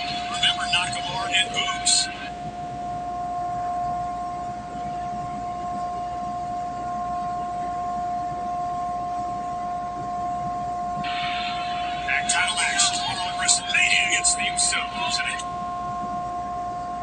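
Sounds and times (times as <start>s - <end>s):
background hiss: 0.0s - 4.7s, 11.0s - 17.0s
steady whining tone: 0.0s - 17.0s.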